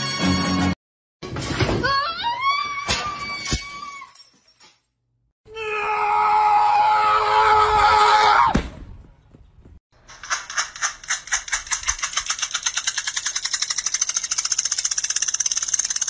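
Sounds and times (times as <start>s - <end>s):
thump: 8.5s - 8.9s
sharp clicks: 10.0s - 16.0s.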